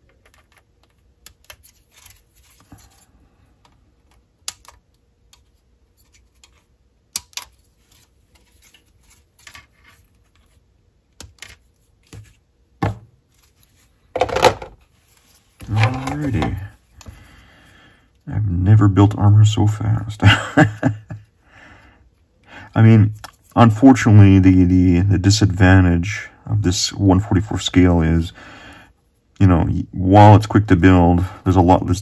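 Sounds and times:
plastic parts clicking and tapping: 0:00.0 - 0:02.9, 0:03.6 - 0:07.6, 0:09.4 - 0:13.0, 0:14.2 - 0:14.8.

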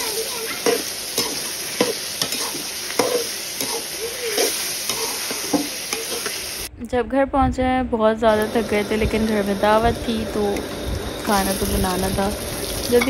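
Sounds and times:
spoon scraping against pot: 0:00.0 - 0:06.4
food sizzling in a pot: 0:00.0 - 0:06.7, 0:08.3 - 0:13.0.

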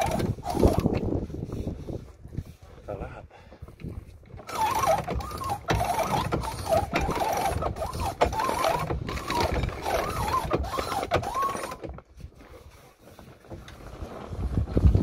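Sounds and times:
rigging squeaking: 0:00.0 - 0:01.3, 0:04.2 - 0:14.5.

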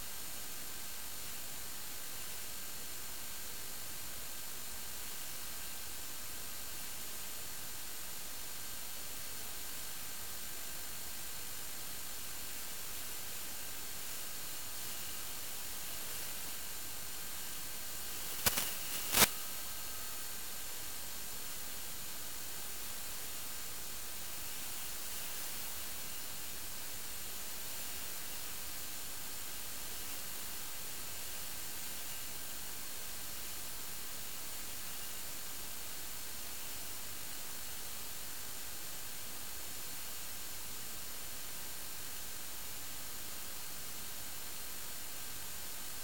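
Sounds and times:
static hiss: 0:00.0 - 0:46.0
short sharp crackles: 0:18.3 - 0:19.4.

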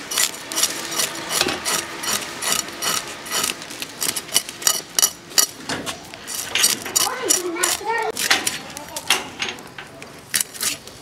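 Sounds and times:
fish scales rasping on blade: 0:00.1 - 0:04.5.

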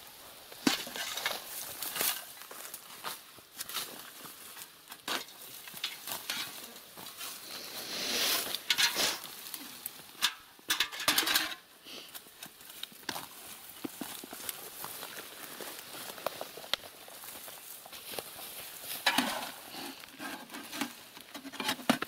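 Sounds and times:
earth knocking into metal buckets: 0:00.5 - 0:02.3, 0:05.0 - 0:06.7, 0:08.5 - 0:09.2, 0:10.1 - 0:11.7, 0:18.9 - 0:22.0
shovel scraping soil: 0:00.6 - 0:02.3, 0:07.2 - 0:09.4, 0:19.0 - 0:22.0.

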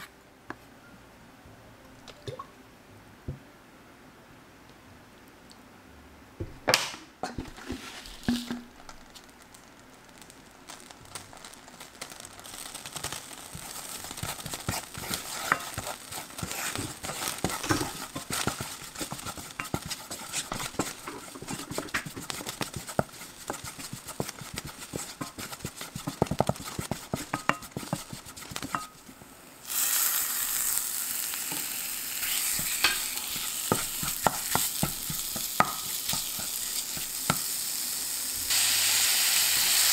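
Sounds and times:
wooden spatula scraping a pan: 0:07.3 - 0:08.6, 0:13.5 - 0:29.0, 0:32.2 - 0:37.4
oil frying in a pan: 0:07.4 - 0:39.9
meat sizzling loudly: 0:08.0 - 0:39.9.

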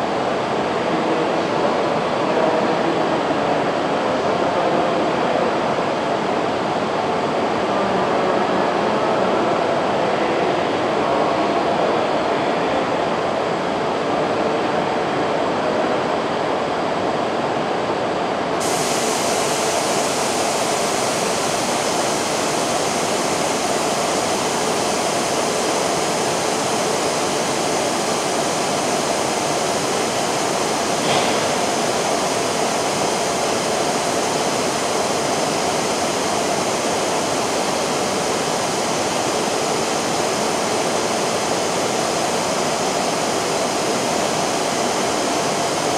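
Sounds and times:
train stopping at platform: 0:00.0 - 0:45.9
steady hiss: 0:18.6 - 0:45.9.

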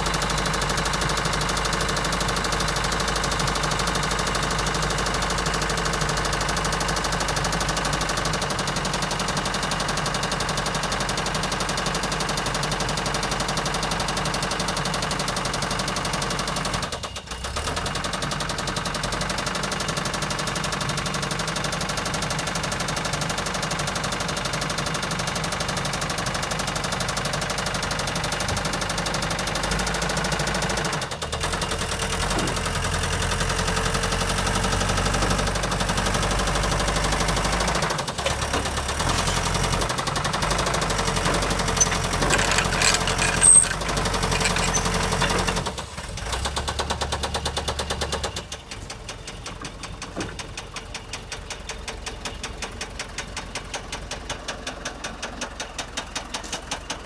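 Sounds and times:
forklift diesel engine running: 0:00.0 - 0:57.0
high squeak: 0:41.4 - 0:45.0.

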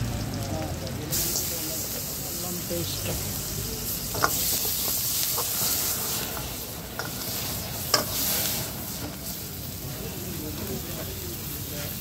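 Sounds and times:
food sizzling in a wok: 0:00.0 - 0:12.0
ladle scraping a wok: 0:03.9 - 0:09.5
ladle clanking against wok: 0:04.0 - 0:09.2.

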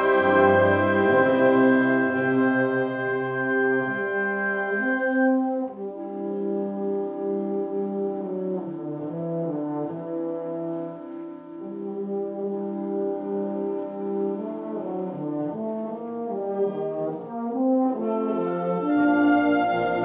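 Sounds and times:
wind band playing held chords: 0:00.0 - 0:20.0.

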